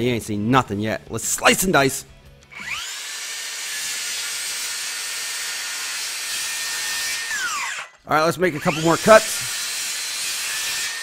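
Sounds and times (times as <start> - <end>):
circular saw cutting wood: 2.5 - 11.0
saw blade braking whine: 2.5 - 11.0.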